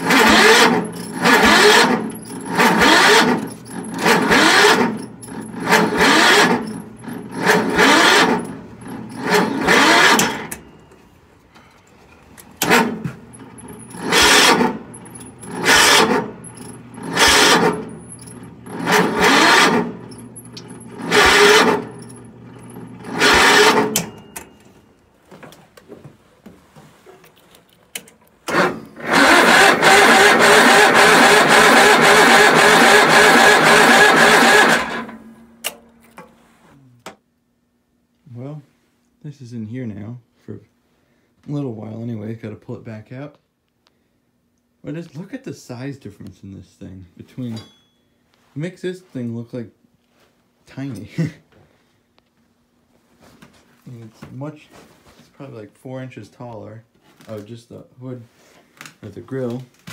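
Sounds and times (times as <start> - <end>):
garden tractor engine surging: 0.0 - 10.6, 12.4 - 24.2, 28.5 - 35.4.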